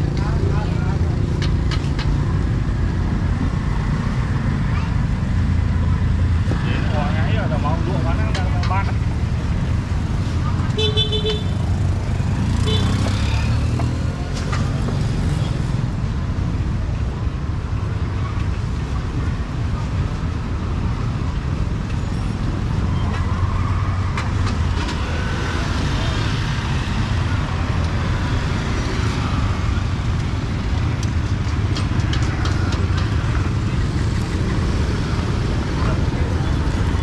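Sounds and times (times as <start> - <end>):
motorbike traffic: 0.0 - 37.0.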